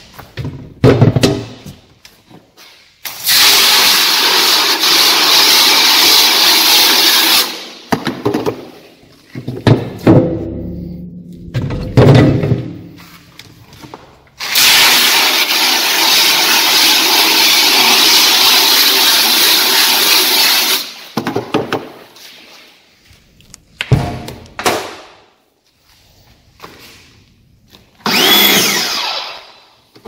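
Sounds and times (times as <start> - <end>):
thumps: 9.3 - 13.1
pressure washer blasting water: 14.4 - 20.9.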